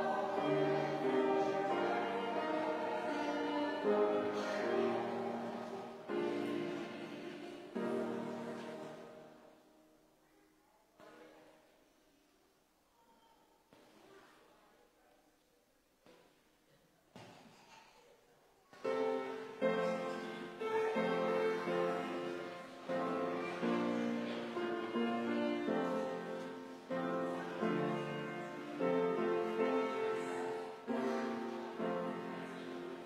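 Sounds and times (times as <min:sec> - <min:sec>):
piano playing slow chords: 0:00.0 - 0:09.3.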